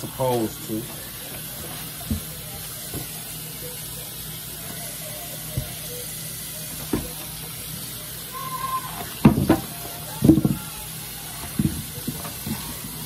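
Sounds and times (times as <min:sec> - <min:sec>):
kitchen tap running: 0:00.0 - 0:13.0
knocks and clatters in sink: 0:11.4 - 0:12.7.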